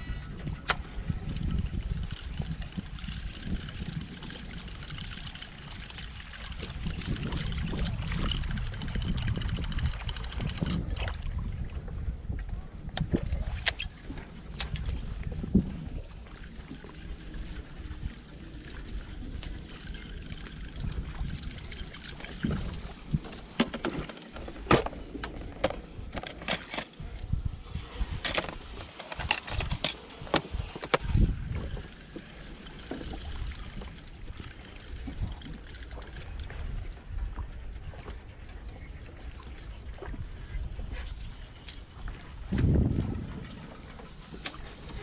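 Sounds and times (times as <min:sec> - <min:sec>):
metal lures clattering: 0:20.4 - 0:31.0
low rumble: 0:42.2 - 0:45.0.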